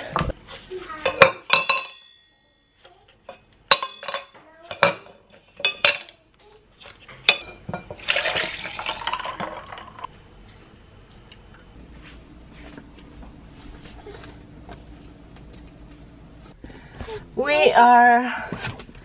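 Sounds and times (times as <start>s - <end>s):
liquid pouring: 7.9s - 10.1s
frozen cubes clinking in glass: 8.0s - 10.1s.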